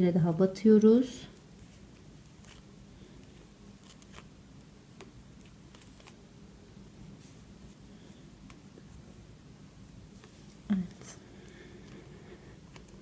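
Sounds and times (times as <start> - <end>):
low steady hum: 0.0 - 13.0
thread rustling: 1.4 - 6.3.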